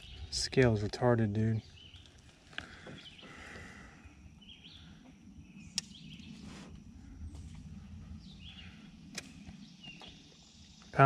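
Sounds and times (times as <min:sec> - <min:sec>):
bird chirps: 0:00.0 - 0:00.8, 0:01.4 - 0:06.5, 0:07.2 - 0:11.0
low rumble: 0:03.6 - 0:11.0
sharp click: 0:05.7 - 0:06.0.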